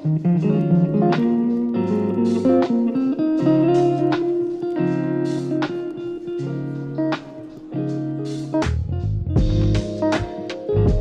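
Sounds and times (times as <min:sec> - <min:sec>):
calm hip-hop instrumental: 0:00.0 - 0:11.0
plucked guitar notes: 0:00.0 - 0:11.0
bass line: 0:08.6 - 0:11.0
drum hits: 0:09.4 - 0:11.0.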